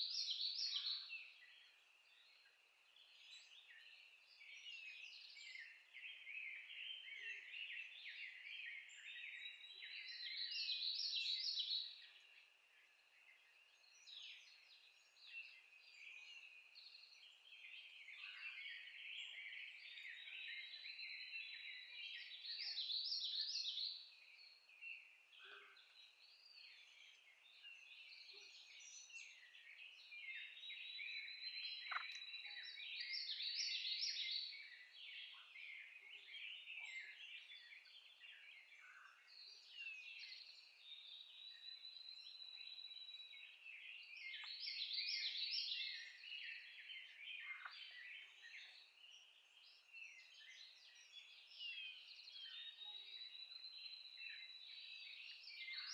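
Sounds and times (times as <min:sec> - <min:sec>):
songbirds chirping and trilling: 0:00.0 - 0:55.9.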